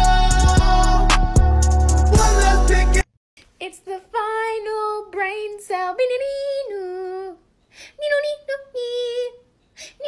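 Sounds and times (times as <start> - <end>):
high voice singing: 0.0 - 3.1.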